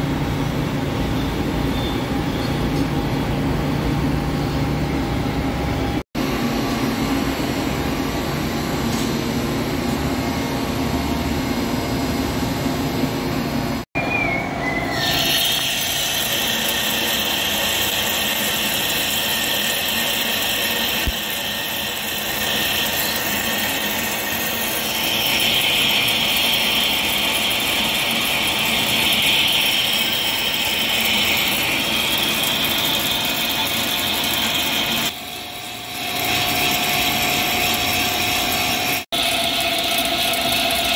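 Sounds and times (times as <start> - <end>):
lathe tool cutting steel: 14.9 - 40.9.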